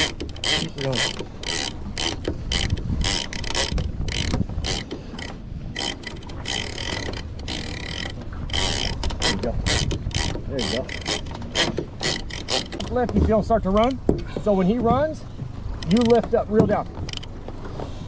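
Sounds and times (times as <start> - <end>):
fishing reel clicking and rasping: 0.0 - 13.0, 15.8 - 16.3, 17.1 - 17.3.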